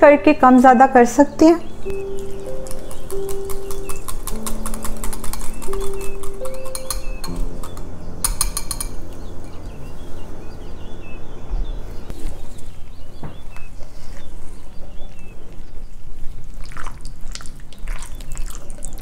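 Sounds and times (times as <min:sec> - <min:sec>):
wet squelching of marinade: 0:16.5 - 0:19.0.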